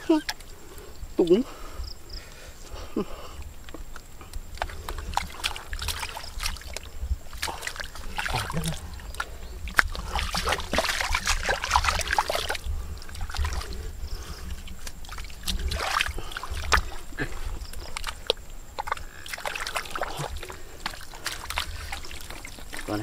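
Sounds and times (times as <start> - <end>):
water trickling: 0.0 - 23.0
splashing in muddy water: 2.6 - 23.0
sharp wet clicks: 3.3 - 13.9, 14.5 - 23.0.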